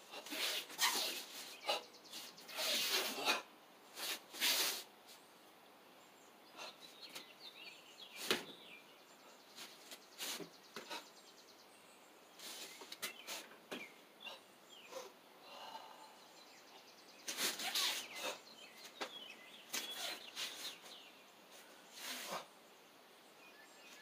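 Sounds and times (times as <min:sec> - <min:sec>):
faint bird chirps: 0:06.0 - 0:24.0.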